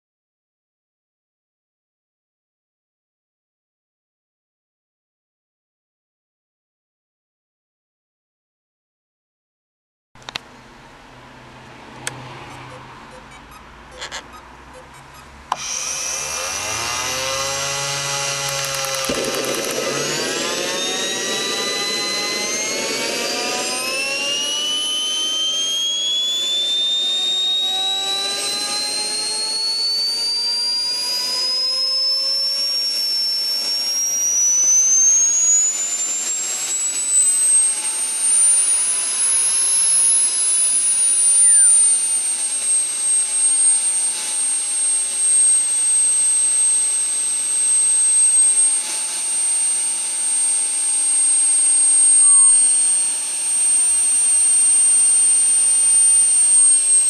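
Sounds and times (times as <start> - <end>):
jet turbine whine: 11.5 - 57.0.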